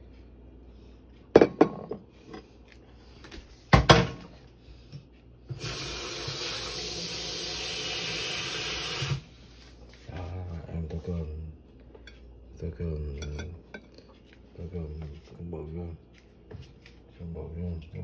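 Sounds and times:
running tap water: 0:05.5 - 0:09.3
dishes clinking against glass bowl: 0:13.1 - 0:14.0.

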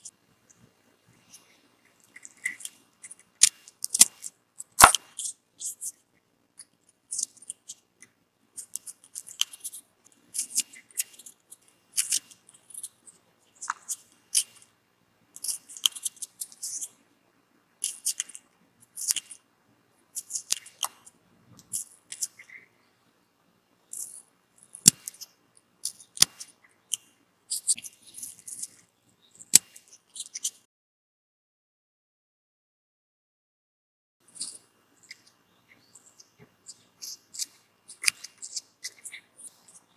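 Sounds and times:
knife snipping radish: 0:03.4 - 0:05.3.

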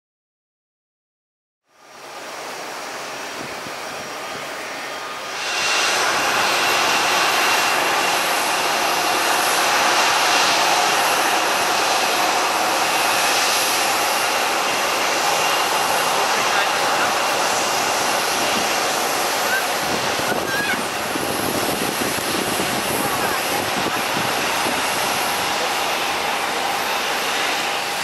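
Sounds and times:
jet engines whining: 0:01.8 - 0:28.0.

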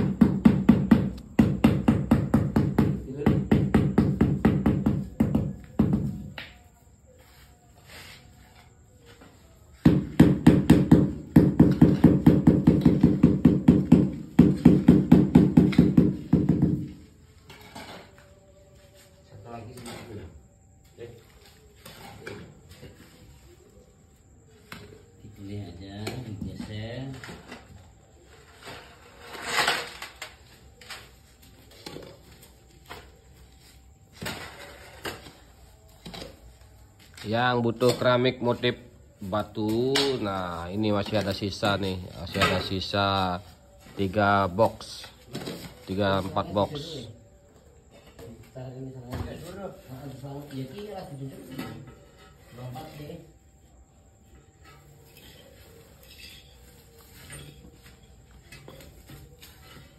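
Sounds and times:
hoe scraping wet mortar: 0:28.3 - 0:31.0, 0:34.2 - 0:36.3.

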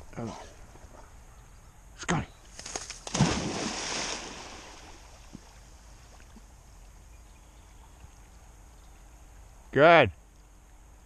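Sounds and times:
faint water sounds: 0:00.0 - 0:11.0
dog splashing into pond: 0:02.5 - 0:06.5.

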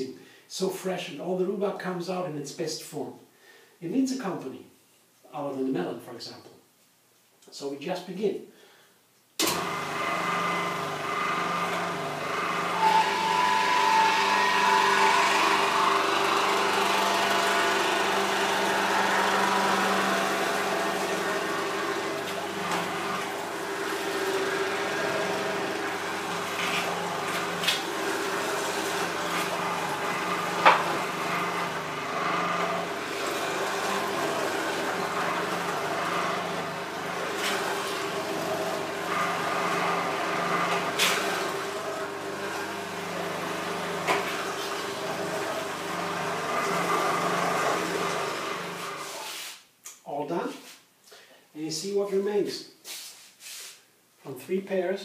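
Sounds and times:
electric juicer motor running: 0:09.4 - 0:49.2.

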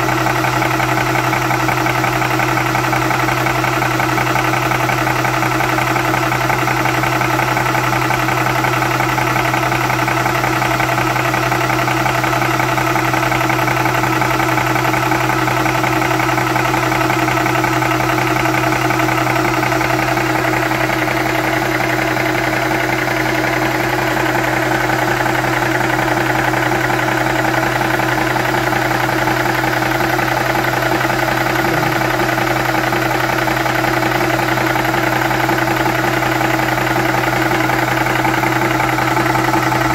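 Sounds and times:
air compressor running: 0:18.1 - 0:39.9.

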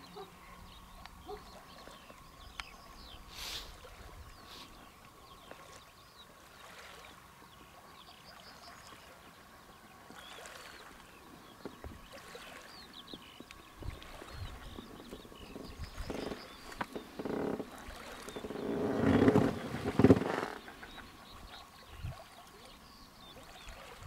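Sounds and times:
soft rush of noise: 0:09.0 - 0:21.9.

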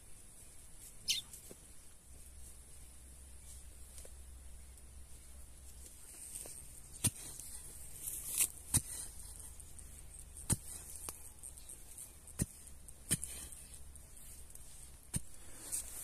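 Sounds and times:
hoe chopping into soil: 0:06.9 - 0:09.1, 0:10.4 - 0:11.1, 0:12.3 - 0:13.7, 0:15.1 - 0:16.0.

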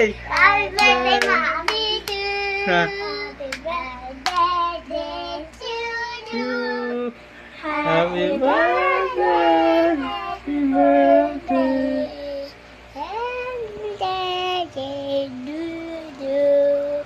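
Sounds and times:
sharp hand claps: 0:00.3 - 0:02.4, 0:03.5 - 0:04.6
child singing: 0:00.3 - 0:17.0.

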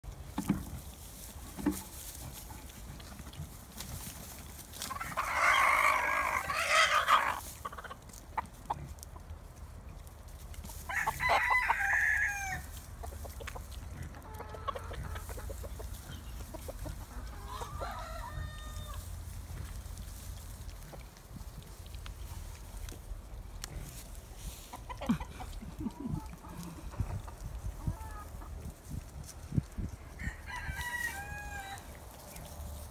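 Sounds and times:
rooster crowing: 0:10.9 - 0:12.6, 0:17.4 - 0:19.0, 0:30.2 - 0:31.9.

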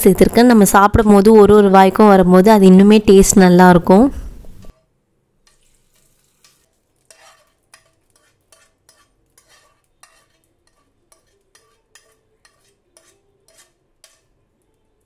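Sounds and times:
spoon scraping frying pan: 0:04.5 - 0:14.8.

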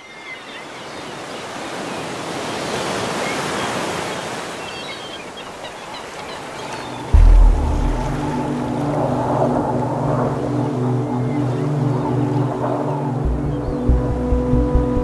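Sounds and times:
ocean surf breaking: 0:06.0 - 0:13.2.

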